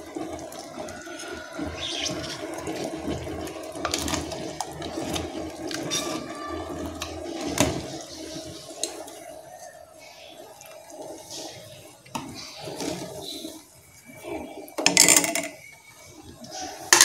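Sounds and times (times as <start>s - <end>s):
wet sloshing and plopping: 0.0s - 9.7s
tub clicking against pot: 1.6s - 8.0s, 14.8s - 15.8s.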